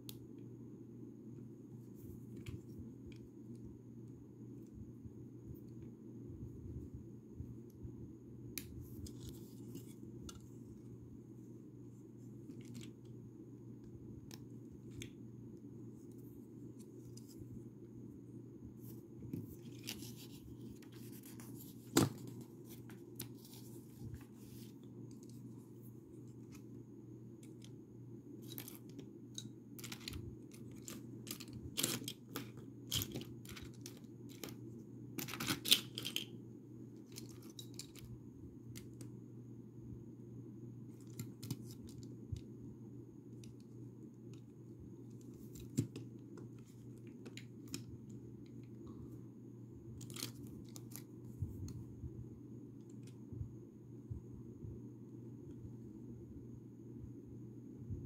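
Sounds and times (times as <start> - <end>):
plastic pieces clicking: 35.2 - 36.3.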